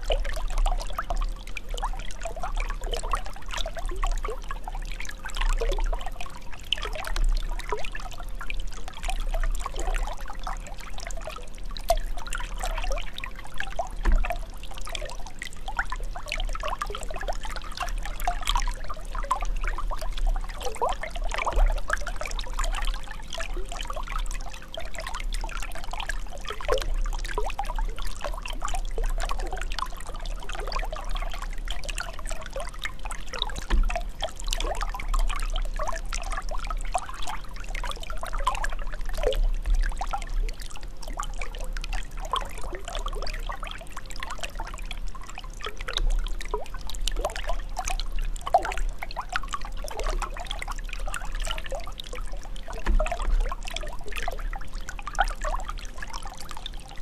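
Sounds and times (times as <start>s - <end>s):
running water pouring and trickling: 0.0s - 57.0s
small bubbling splashes: 0.0s - 57.0s.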